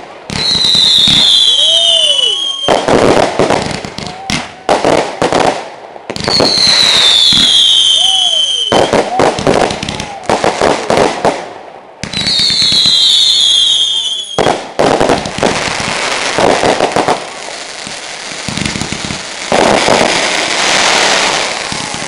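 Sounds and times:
fireworks crackling and popping: 0.0s - 22.0s
fireworks cracks and bangs: 0.0s - 22.0s
firework whistle falling in pitch: 0.4s - 2.9s.

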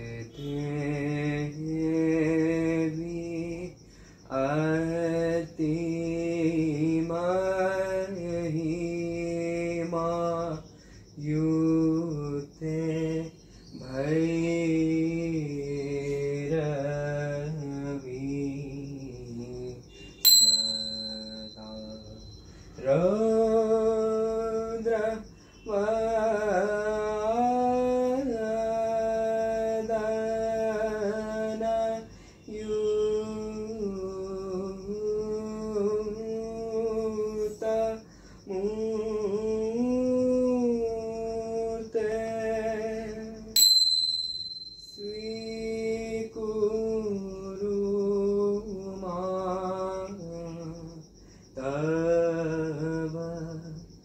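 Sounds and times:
metallic ting: 20.2s - 22.3s, 43.6s - 45.6s.

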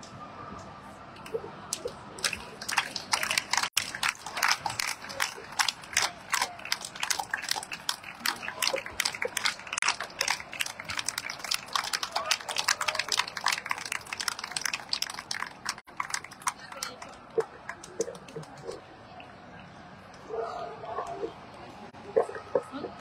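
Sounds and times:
spectators clapping: 1.7s - 18.8s.

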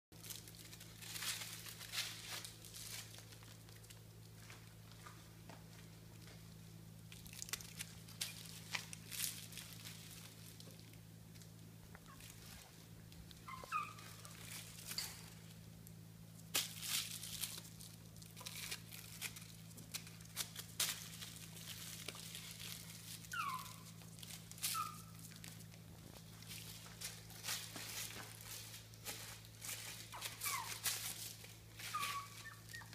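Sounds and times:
claws and toys on tile floor: 0.2s - 32.9s
steady low hum: 0.2s - 32.9s
puppy squeaks: 12.0s - 12.4s, 13.4s - 14.5s, 23.2s - 24.0s, 24.6s - 25.3s, 30.1s - 31.0s, 31.8s - 32.9s.

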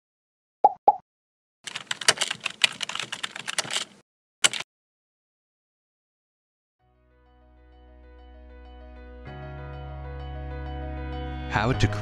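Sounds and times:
rapid keyboard key clicks: 1.7s - 4.6s.

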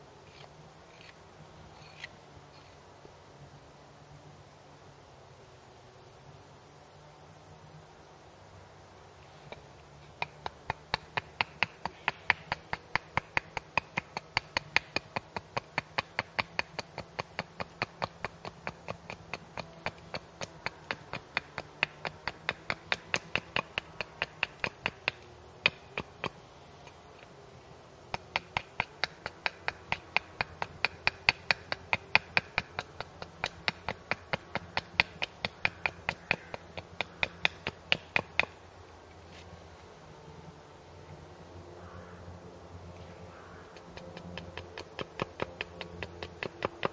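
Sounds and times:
hatchet chopping wood: 9.5s - 26.4s, 28.1s - 38.6s, 43.7s - 46.9s.

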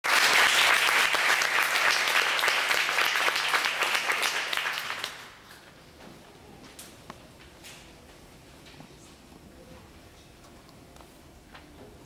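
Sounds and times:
audience applause: 0.0s - 5.4s.

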